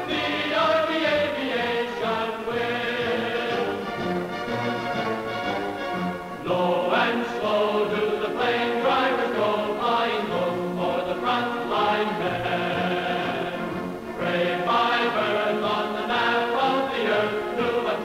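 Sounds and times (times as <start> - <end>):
orchestra playing: 0.0 - 6.7, 11.7 - 15.8
choir singing held chords: 0.0 - 18.0.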